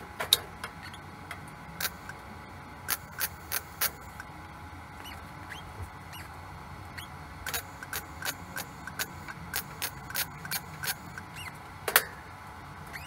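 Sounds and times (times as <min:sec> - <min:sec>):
welding arc crackling: 0:01.8 - 0:02.1, 0:02.8 - 0:04.2, 0:07.4 - 0:11.2.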